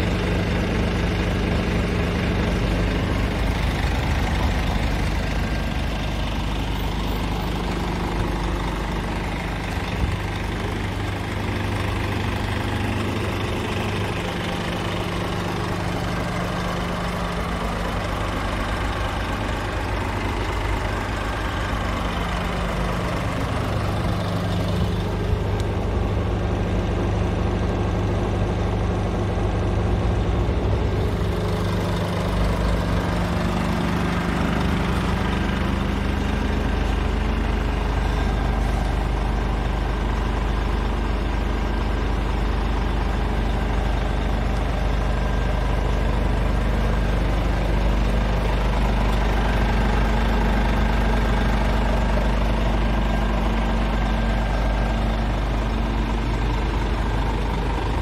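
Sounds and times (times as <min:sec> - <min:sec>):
diesel truck engine idling: 0:00.0 - 0:58.0.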